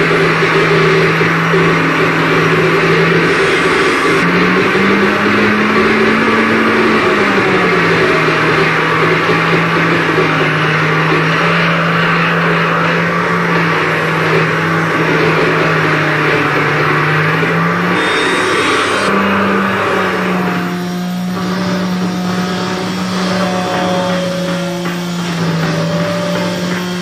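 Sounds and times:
wall of amplified noise: 0.0 - 11.6, 13.1 - 27.0
steady low hum: 1.6 - 6.1.

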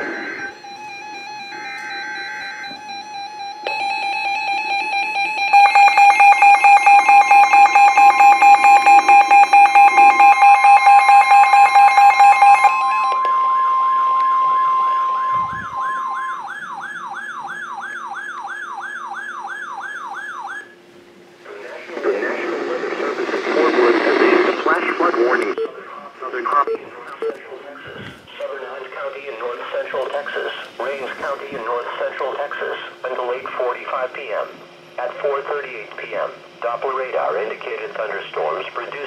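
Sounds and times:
steady alert tone: 0.0 - 18.1
rapid beeping: 0.0 - 20.8
warbling siren-like alarm: 0.0 - 20.9.

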